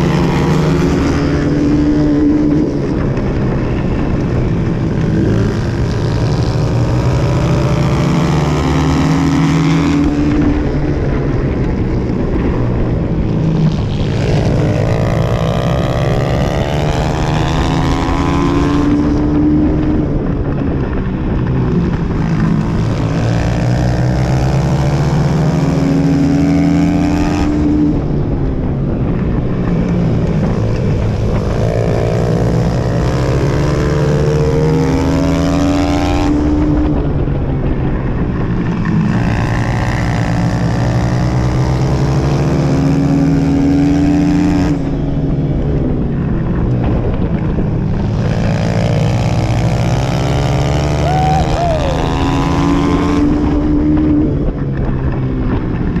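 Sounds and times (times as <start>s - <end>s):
dirt bike engine racing: 0.0s - 56.0s.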